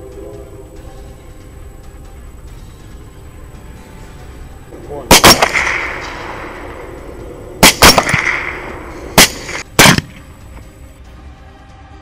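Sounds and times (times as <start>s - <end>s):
rolling echo of gunshots: 5.1s - 6.9s, 7.6s - 10.2s
suppressed rifle shots: 5.1s - 7.0s, 7.6s - 10.3s.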